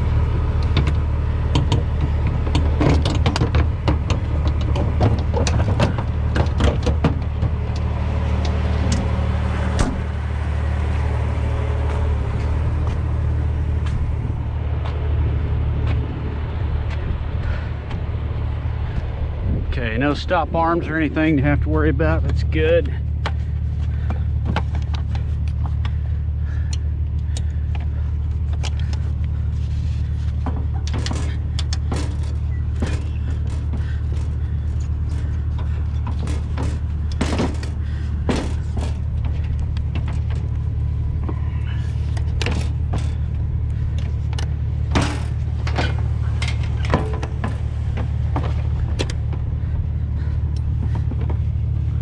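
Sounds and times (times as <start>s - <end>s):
diesel truck engine idling: 0.0s - 52.0s
metal hardware clicks and rattles: 0.6s - 9.1s, 30.1s - 51.8s.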